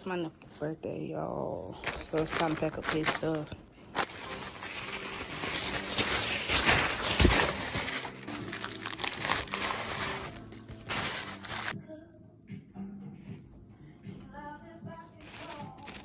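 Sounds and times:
paper and plastic bags crinkling: 1.7 - 11.8, 15.2 - 16.0.

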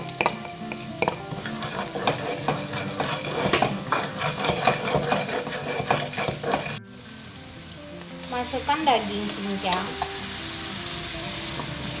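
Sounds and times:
spatula scraping a wok: 0.0 - 6.8
oil sizzling: 0.0 - 12.0.

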